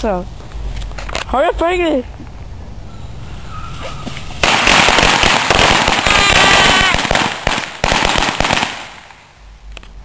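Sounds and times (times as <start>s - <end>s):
sharp firework pops: 4.1s - 10.0s
firework crackling hiss: 4.2s - 9.4s
firework whistle: 6.0s - 7.2s.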